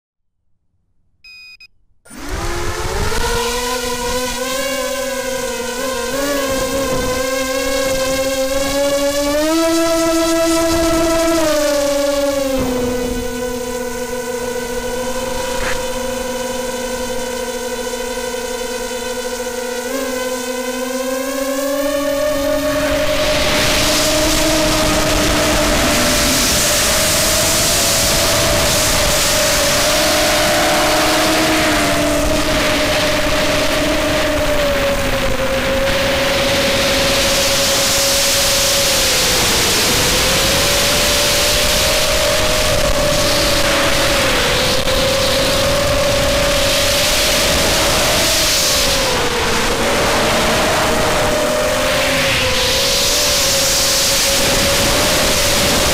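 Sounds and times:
short electronic beep: 1.2s - 1.8s
quadcopter propellers buzzing whine: 1.3s - 55.9s.

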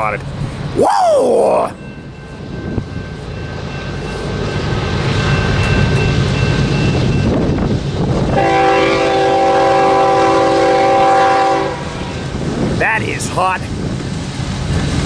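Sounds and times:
diesel locomotives rumbling: 0.0s - 15.0s
locomotive air horn chord: 8.3s - 12.0s.

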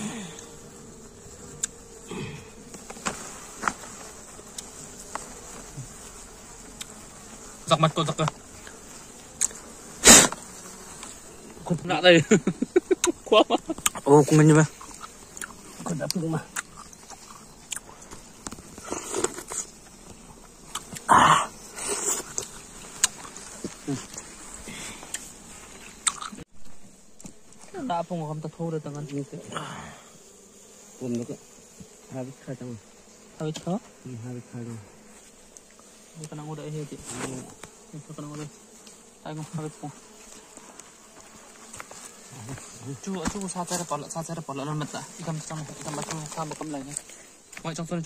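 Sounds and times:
honeybees buzzing: 0.0s - 48.0s
chewing honeycomb: 0.3s - 3.0s, 4.1s - 7.5s, 13.0s - 21.2s, 21.8s - 26.5s
loud bite: 26.0s - 26.4s.

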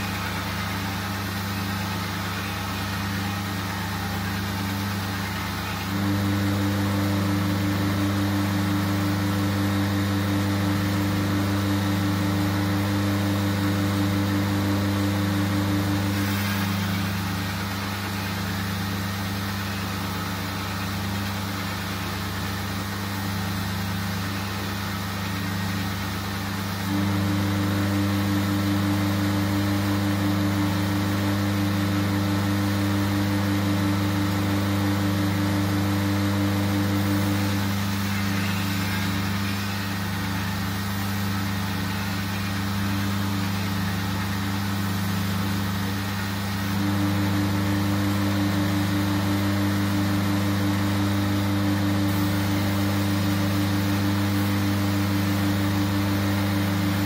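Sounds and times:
belt grinder motor hum: 0.0s - 20.7s, 26.6s - 57.0s.

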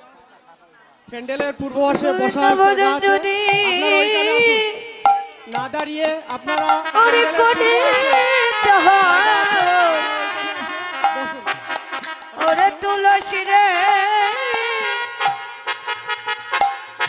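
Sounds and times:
drum strokes: 3.2s - 4.0s, 5.0s - 8.4s, 11.0s - 17.0s
sharp percussion hits: 3.3s - 4.0s, 5.0s - 8.4s, 11.0s - 17.0s.

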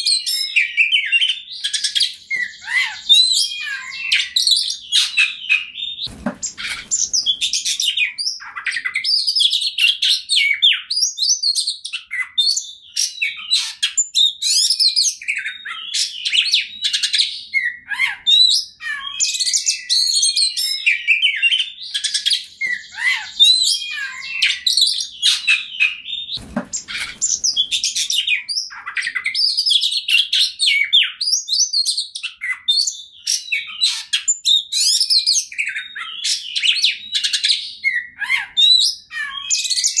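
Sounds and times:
bird singing whistles and chirps: 0.0s - 40.0s.

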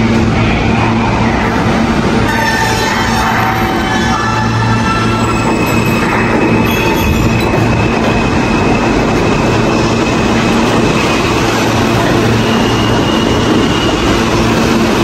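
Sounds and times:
subway train rumbling on rails: 0.0s - 15.0s.

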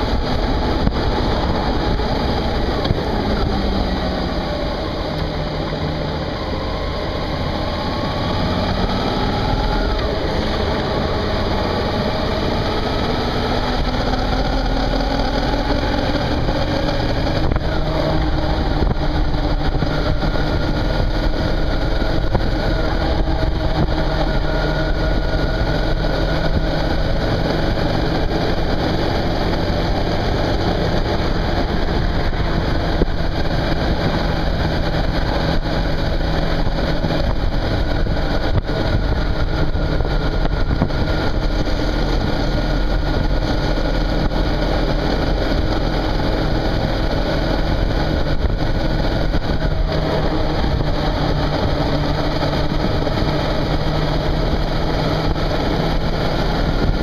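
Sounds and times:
motorcycle engine running: 0.0s - 57.0s
wind noise: 0.0s - 57.0s.

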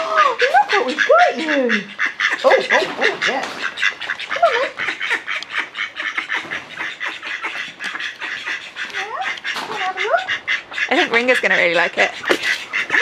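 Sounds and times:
ducks quacking: 0.0s - 13.0s.

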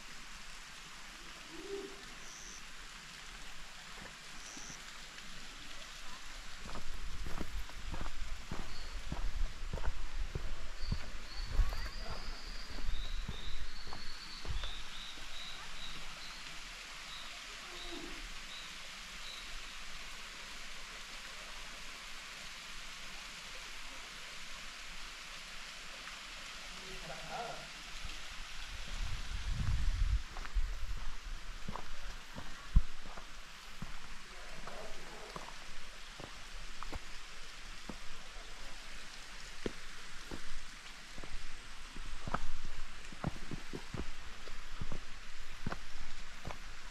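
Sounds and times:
distant waterfall rushing: 0.0s - 46.9s
bird chirping: 7.9s - 16.5s.

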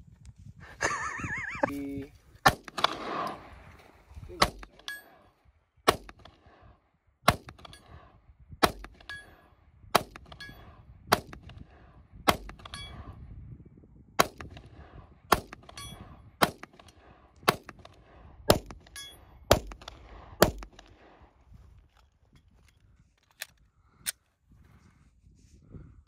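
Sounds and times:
pistol shots: 2.4s - 3.5s, 5.9s - 6.6s, 7.3s - 8.0s, 8.6s - 9.3s, 14.2s - 15.8s, 16.4s - 21.1s.

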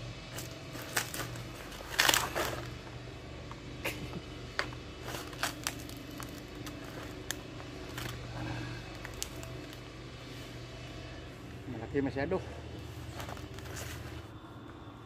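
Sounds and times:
banana peel tearing: 0.4s - 2.8s, 5.0s - 9.8s.

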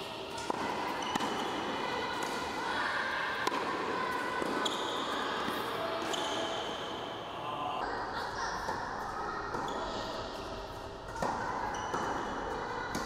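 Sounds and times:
tennis ball struck and bouncing: 0.4s - 1.6s, 3.4s - 3.8s.

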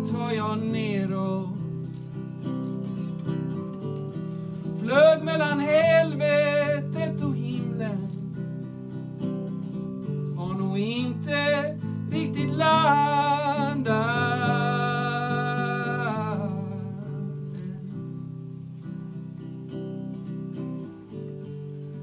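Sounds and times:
man singing: 0.0s - 2.0s, 4.6s - 8.5s, 10.3s - 18.4s
strummed acoustic guitar: 0.0s - 22.0s.

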